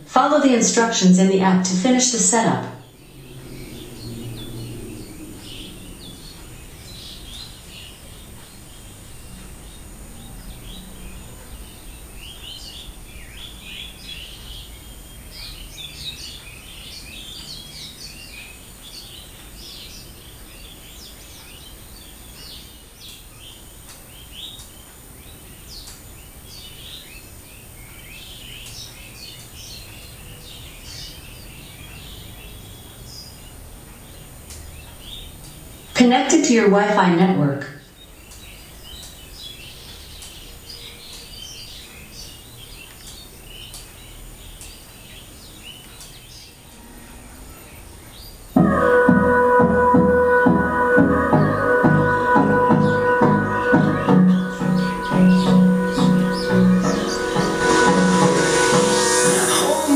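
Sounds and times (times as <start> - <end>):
small birds chirping: 0.0 - 49.6, 50.2 - 59.9
low steady rumble: 1.1 - 12.1.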